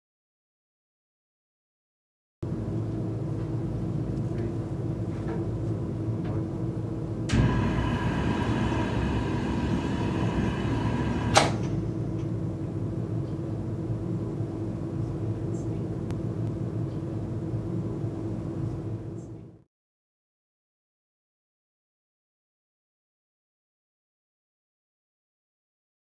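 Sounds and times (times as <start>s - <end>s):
steady low hum: 2.4s - 19.7s
burners igniting with rush of flame: 7.3s - 12.4s
sharp snap: 11.1s - 11.8s.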